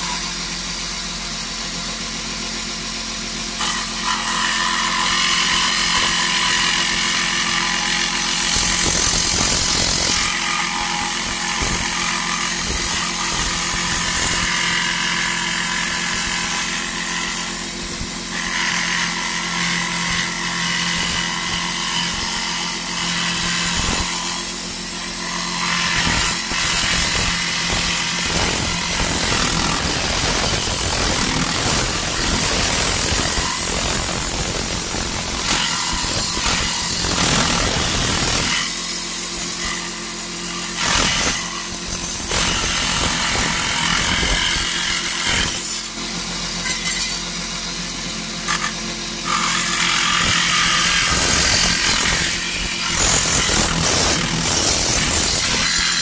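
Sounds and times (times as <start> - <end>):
saw cutting metal sheet: 0.0 - 56.0
saw motor whine: 3.4 - 56.0.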